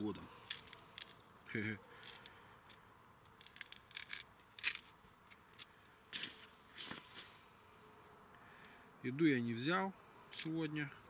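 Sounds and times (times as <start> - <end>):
fruit peel tearing: 3.3 - 4.9.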